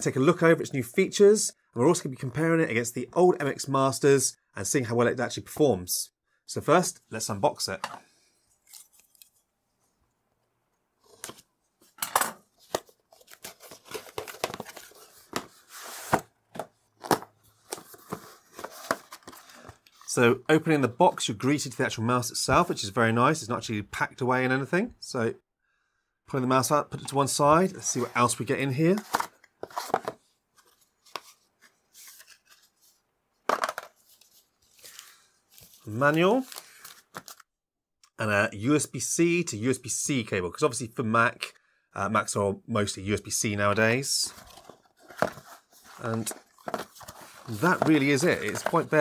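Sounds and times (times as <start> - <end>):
cardboard and paper rustling: 11.1 - 20.1, 28.9 - 37.4, 44.2 - 49.0.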